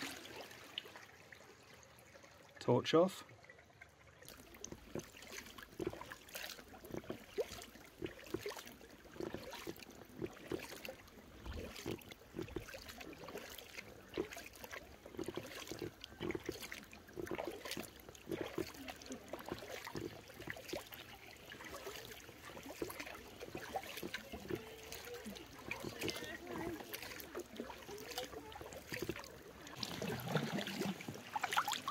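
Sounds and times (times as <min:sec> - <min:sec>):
paddle splashing water: 0:00.0 - 0:31.9
water dripping off paddle: 0:03.3 - 0:31.9.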